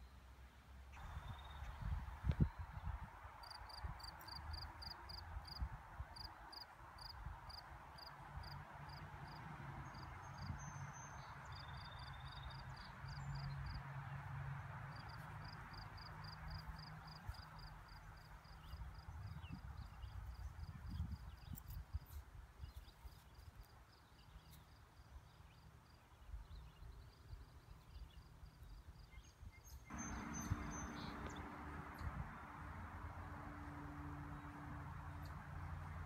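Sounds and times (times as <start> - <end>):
wind rumble on microphone: 1.0 - 4.0, 18.6 - 22.9, 29.4 - 36.0.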